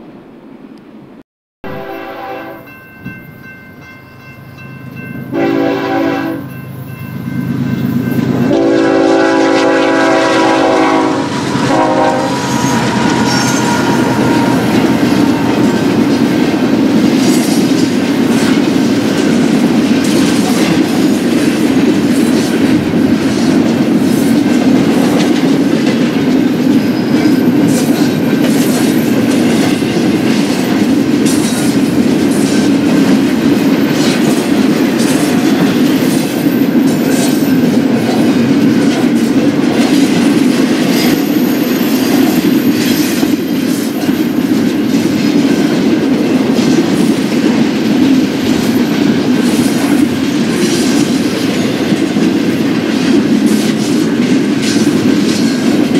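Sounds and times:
train wheels rolling on rail: 2.7s - 55.9s
faint high wheel squeal: 12.4s - 16.0s.

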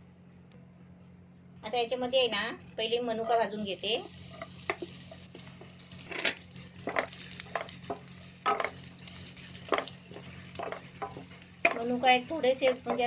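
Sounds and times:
faint steady hum: 0.0s - 13.0s
wooden spatula scraping a pan: 3.2s - 13.0s.

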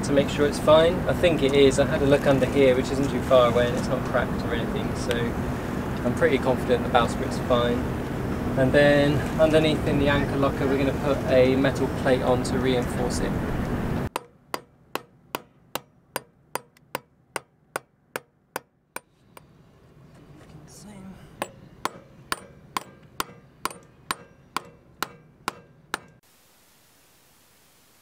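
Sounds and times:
hammer striking steel bar: 14.1s - 19.5s, 21.4s - 26.2s.

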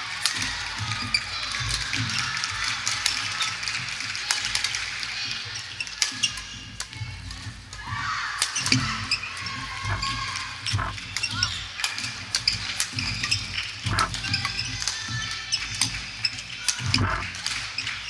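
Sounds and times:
shoes squeaking on court floor: 8.6s - 18.0s.

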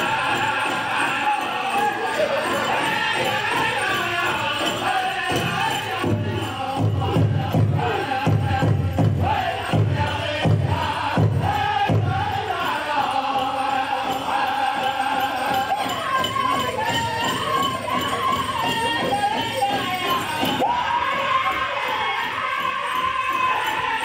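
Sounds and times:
big drum beats: 0.0s - 24.0s
group singing in high wavering voices: 0.0s - 24.0s.

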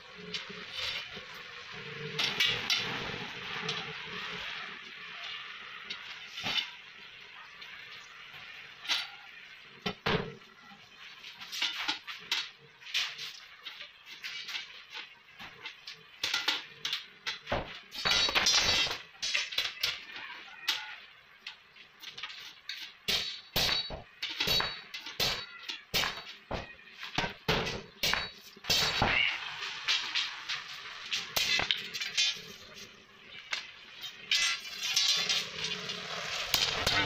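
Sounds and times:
hammer striking metal: 23.1s - 26.3s, 27.5s - 29.2s.

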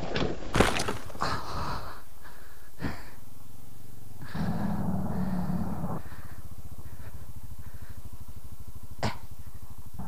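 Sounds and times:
dirt bike crash knocks: 0.0s - 1.4s
heavy pained breathing: 1.2s - 3.3s, 4.2s - 8.3s.

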